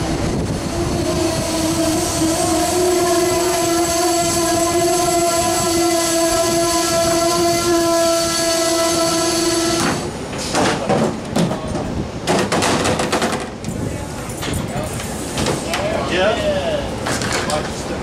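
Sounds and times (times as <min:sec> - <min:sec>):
train brakes squealing: 0:00.8 - 0:10.0.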